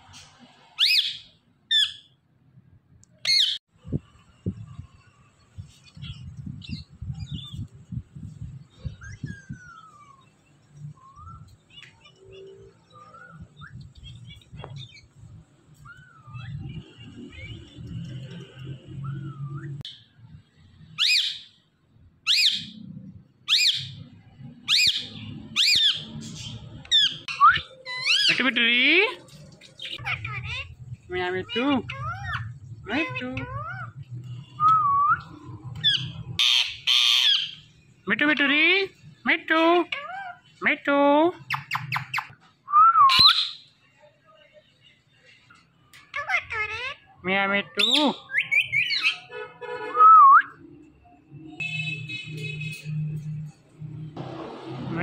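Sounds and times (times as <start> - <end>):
parakeets screeching: 0.7 - 2.2, 3.3 - 3.6, 20.9 - 21.6, 23.5 - 34.5, 35.5 - 40.7, 46.0 - 49.3
parakeet chirps: 29.7 - 37.7, 41.4 - 42.4, 47.7 - 49.3.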